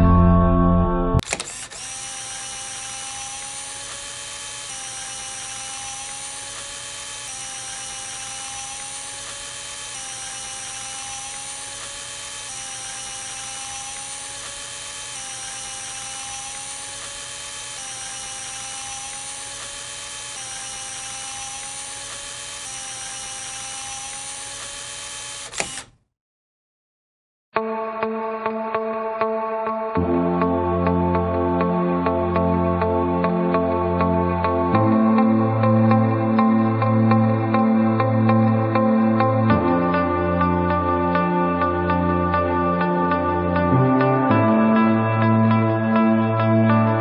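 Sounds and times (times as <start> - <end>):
tape rewind whir: 0.0 - 26.0.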